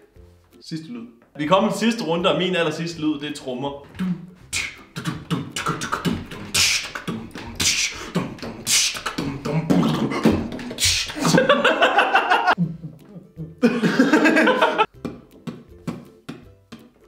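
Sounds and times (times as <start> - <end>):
man beatboxing: 3.9 - 11.5.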